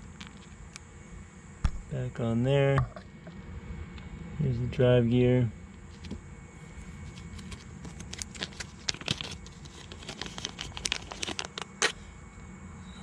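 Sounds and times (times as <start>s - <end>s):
plastic bag crinkling: 7.1s - 11.9s.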